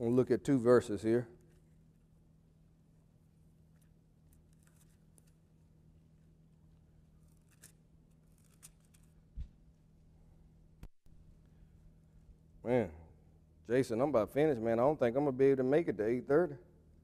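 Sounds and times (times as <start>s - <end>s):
pages being turned: 3.7s - 5.4s, 7.2s - 9.6s.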